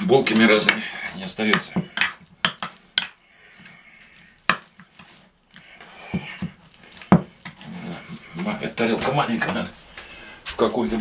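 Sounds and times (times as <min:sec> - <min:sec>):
wet squelching by hand: 0:01.6 - 0:09.3.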